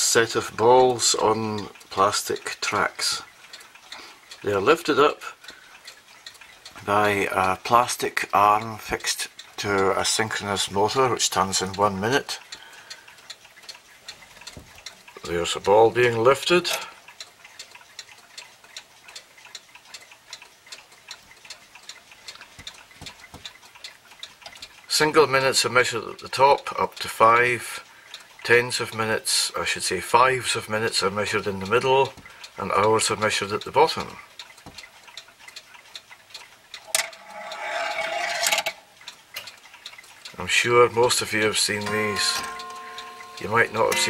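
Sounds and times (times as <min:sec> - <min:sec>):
clock mechanism clicking: 0:00.0 - 0:44.0
whirring rattle: 0:36.7 - 0:39.5.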